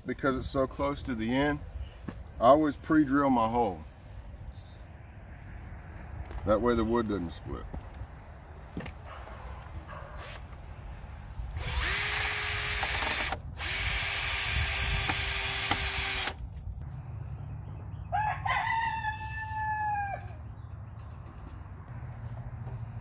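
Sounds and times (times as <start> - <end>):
cordless drill boring into wood: 11.5 - 16.4
rooster crowing: 18.1 - 20.5.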